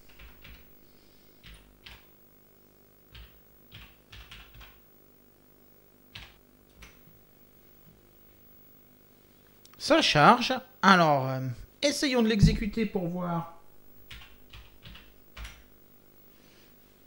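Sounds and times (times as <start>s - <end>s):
keyboard typing clicks: 3.1s - 4.8s, 6.2s - 7.1s, 14.1s - 15.7s.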